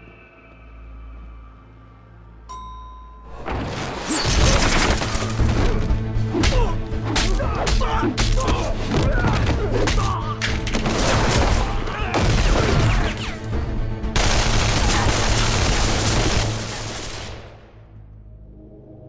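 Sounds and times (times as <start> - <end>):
dramatic film score: 0.0 - 19.0
rapid handgun fire: 14.2 - 17.1.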